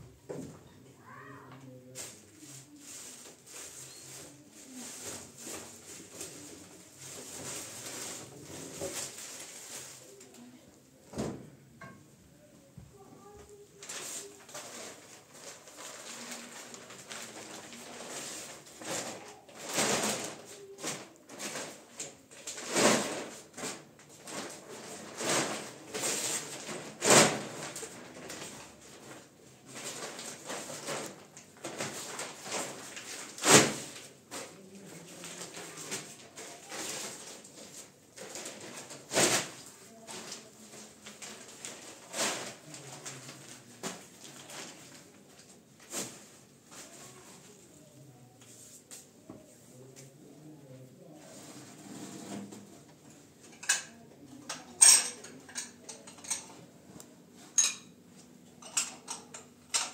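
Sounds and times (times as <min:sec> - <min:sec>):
covers rustling and crinkling: 0:01.8 - 0:10.6, 0:13.2 - 0:50.2.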